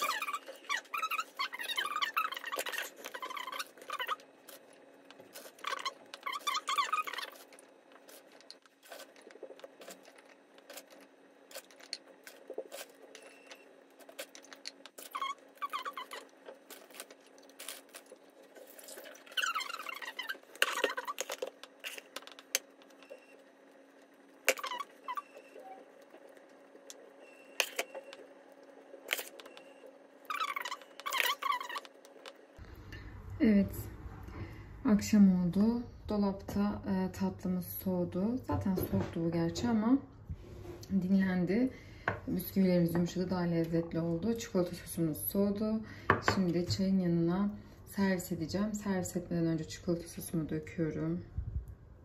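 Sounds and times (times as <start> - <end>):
spoon scraping and squeaking: 0.0 - 4.7, 5.3 - 22.4, 24.5 - 25.9, 30.3 - 32.3.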